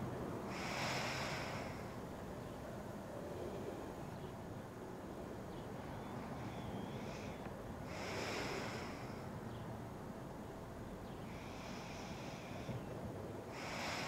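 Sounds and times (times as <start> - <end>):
low steady background hum: 0.0 - 14.0
slow heavy breathing: 0.4 - 2.1, 6.2 - 9.4, 11.0 - 14.0.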